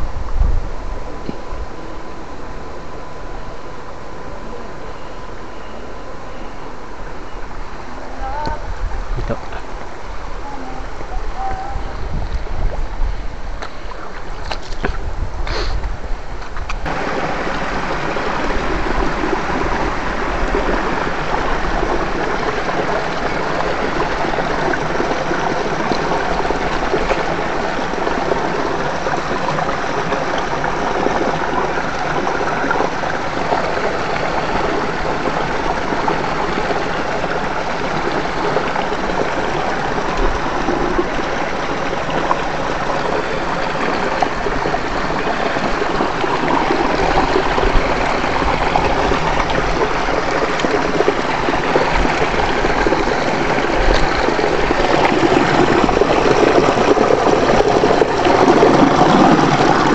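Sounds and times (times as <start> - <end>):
stream water rushing over stones: 8.7 - 59.9.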